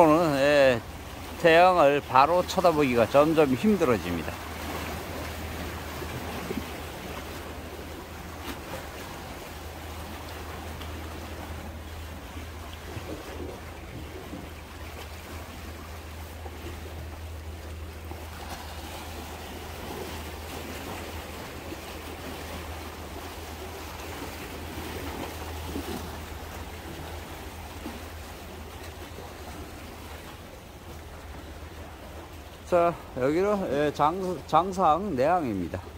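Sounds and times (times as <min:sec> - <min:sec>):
small waves washing against rocks: 0:00.0 - 0:34.8.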